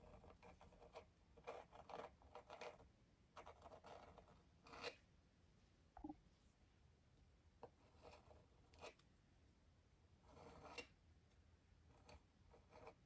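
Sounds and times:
knife scratching through clay: 0.0 - 5.1, 7.7 - 9.0, 10.2 - 11.0, 11.9 - 13.0.

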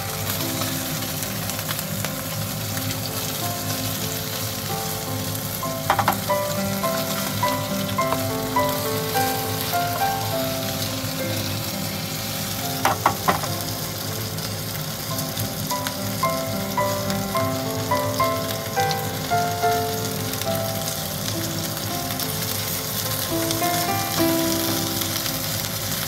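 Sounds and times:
background music: 0.0 - 26.0
fish sizzling in a frying pan: 0.0 - 26.0
spatula tapping pan: 5.8 - 7.3, 12.8 - 13.7.

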